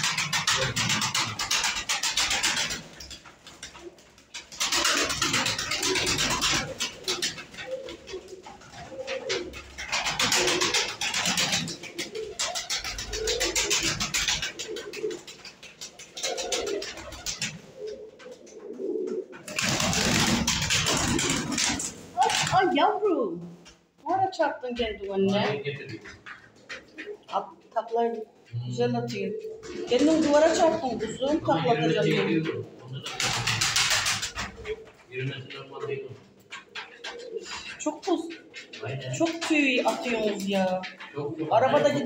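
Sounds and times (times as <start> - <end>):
pigeons cooing: 0.0 - 23.1, 24.1 - 42.0
wings flapping: 0.0 - 24.0, 24.7 - 42.0.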